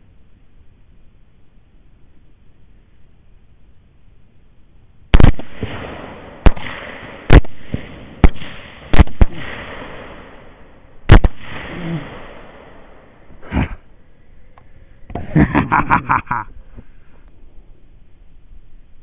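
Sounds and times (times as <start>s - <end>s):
rifle shots with echo: 5.1s - 13.4s.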